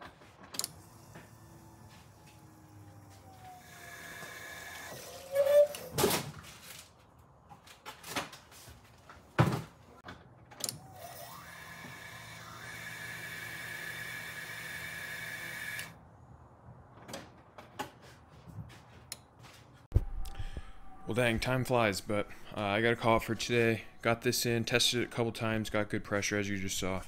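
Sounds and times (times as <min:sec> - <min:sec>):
electric fuel pump whining: 0:00.5 - 0:05.9, 0:10.5 - 0:16.0.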